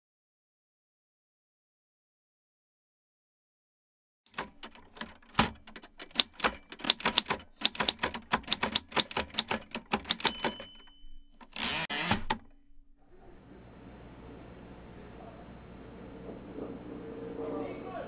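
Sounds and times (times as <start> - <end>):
typewriter keys clacking: 4.3 - 12.5
typewriter bell ring: 6.1 - 11.7.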